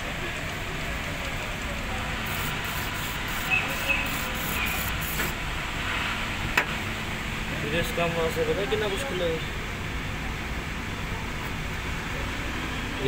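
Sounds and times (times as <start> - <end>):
hiss: 2.2 - 6.2.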